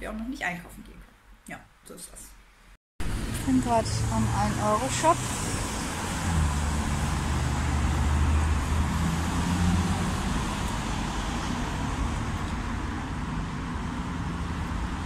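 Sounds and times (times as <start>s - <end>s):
road traffic noise: 3.0s - 15.0s
vehicle engine hum: 3.0s - 15.0s.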